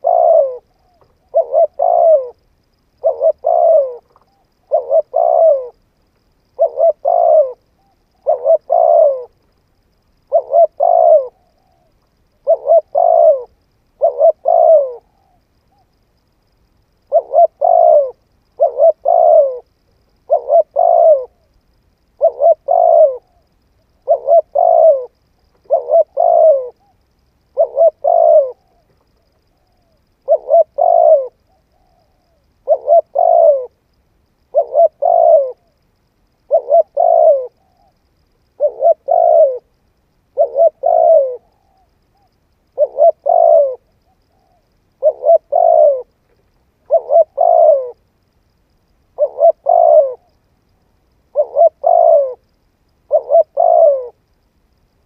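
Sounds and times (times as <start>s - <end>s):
dove cooing: 0.0s - 2.4s, 3.0s - 9.5s, 10.1s - 16.0s, 17.0s - 21.6s, 22.2s - 48.0s, 49.1s - 50.4s, 51.3s - 54.4s.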